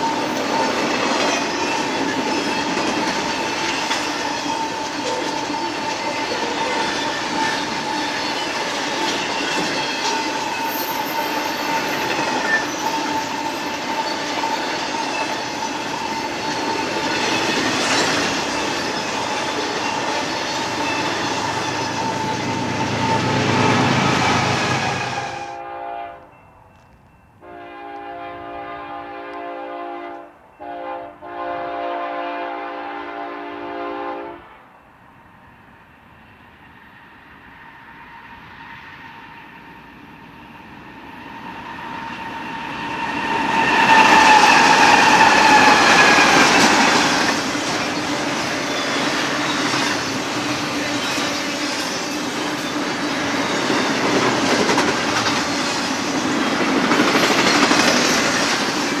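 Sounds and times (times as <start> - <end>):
freight train wheels clattering: 0.0 - 25.5, 41.4 - 59.0
approaching train rumble: 0.0 - 59.0
locomotive air horn blasts: 22.5 - 26.3, 27.4 - 34.5.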